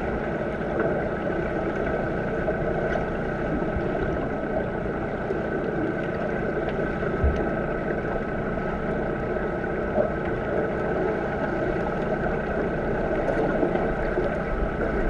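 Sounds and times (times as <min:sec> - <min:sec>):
faint high hum: 0:00.0 - 0:15.0
underwater churning rush of water: 0:00.0 - 0:15.0
soft underwater thumps: 0:06.7 - 0:08.0.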